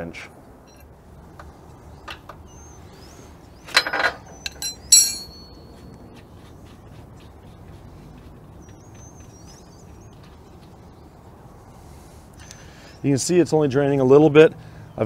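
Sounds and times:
birds chirping faintly: 0.4 - 15.0
wrench clinking on metal: 3.7 - 5.7.

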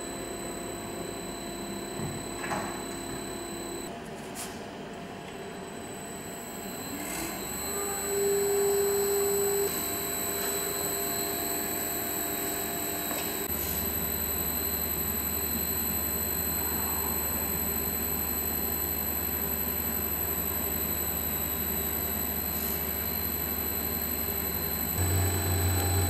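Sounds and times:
electric motors whining: 0.0 - 3.9, 5.7 - 26.0
low hum: 25.0 - 26.0.

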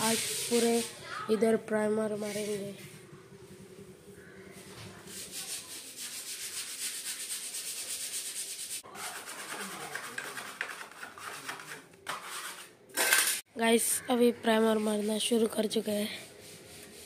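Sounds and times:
hand strokes rubbing plaster wall: 0.0 - 1.0, 5.0 - 12.7.

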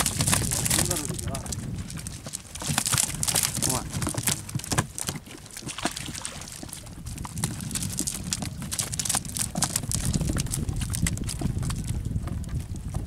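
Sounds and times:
net rustling: 0.0 - 6.6
fish flapping on wooden deck: 0.0 - 13.0.

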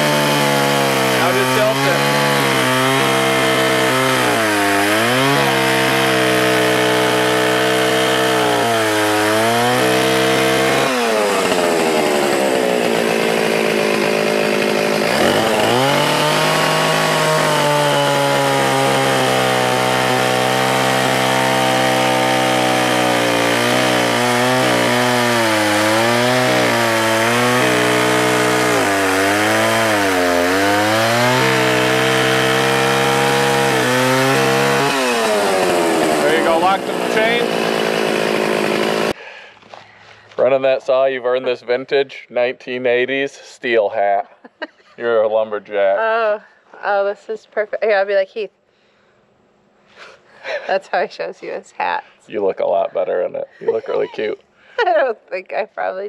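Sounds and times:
chainsaw cutting a log: 0.0 - 39.2, 53.6 - 54.4.

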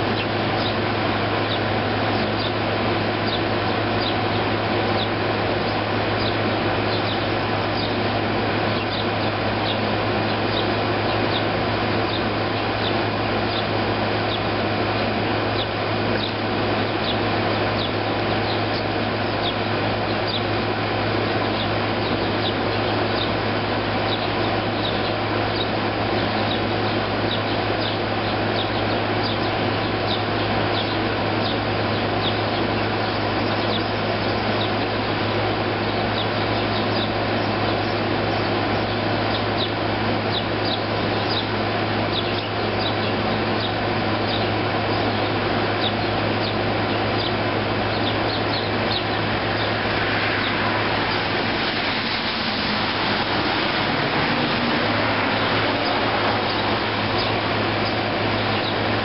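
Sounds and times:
sparrow chirps: 0.0 - 20.6, 21.2 - 59.0
air conditioner humming: 0.0 - 59.0
rushing noise: 48.6 - 59.0.

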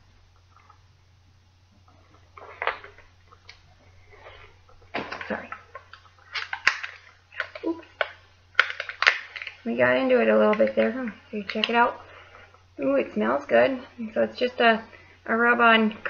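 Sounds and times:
wrapping rustling: 1.8 - 12.8.

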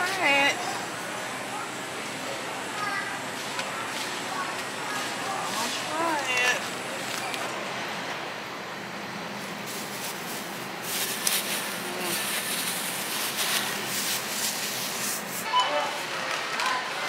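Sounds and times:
faint voices: 0.0 - 8.0, 11.7 - 13.9
rustling and handling sounds: 9.4 - 16.8.

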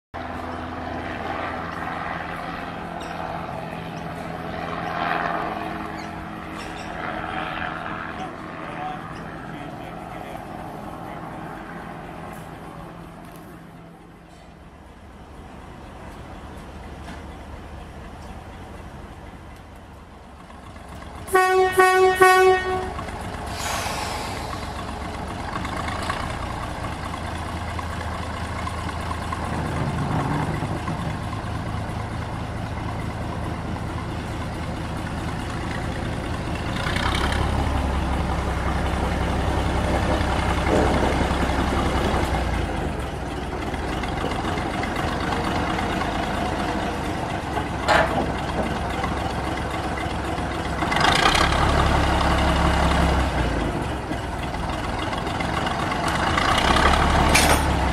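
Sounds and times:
low engine rumble: 0.2 - 57.9
locomotive horn toots: 21.2 - 24.3
metal clanks: 47.6 - 48.8, 57.3 - 57.8.

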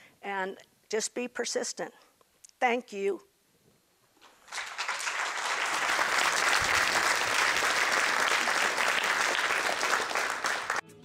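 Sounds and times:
audience applauding: 4.4 - 10.8.

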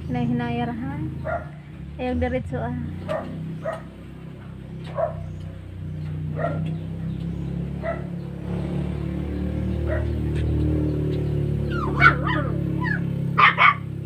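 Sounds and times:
dog barking: 1.2 - 1.6, 3.1 - 4.0, 4.9 - 5.3, 6.3 - 6.8, 7.8 - 8.2, 9.8 - 10.2, 11.7 - 13.9.

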